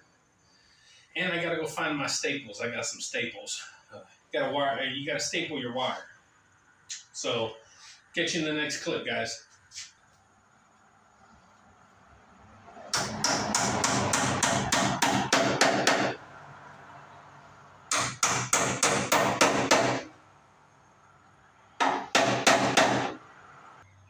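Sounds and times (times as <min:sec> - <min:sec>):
hammer driving nails into wood: 0:12.9 - 0:16.2, 0:17.9 - 0:20.1, 0:21.8 - 0:23.2.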